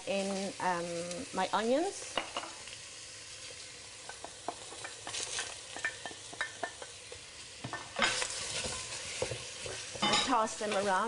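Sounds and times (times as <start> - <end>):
onions sizzling in hot oil: 0.0 - 11.0
wooden spoon scraping and knocking: 7.7 - 10.9.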